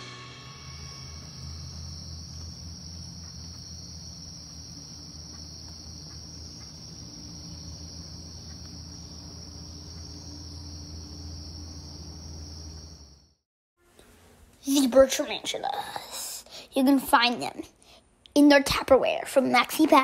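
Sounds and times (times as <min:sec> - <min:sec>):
insects chorus: 0:00.0 - 0:13.4
low steady hum: 0:00.0 - 0:15.7.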